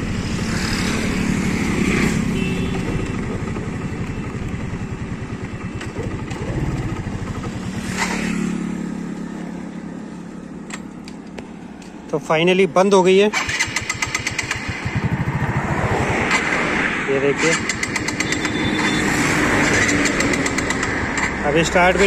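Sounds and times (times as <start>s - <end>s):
motorcycle engine running unevenly: 2.3s - 11.5s.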